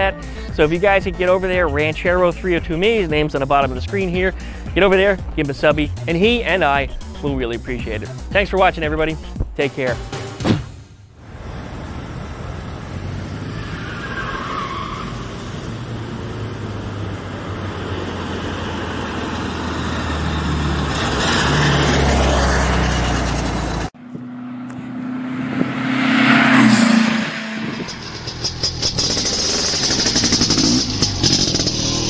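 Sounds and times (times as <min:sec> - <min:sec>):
car engine running: 0:15.5 - 0:32.0
engine with steady low tone: 0:22.8 - 0:32.0.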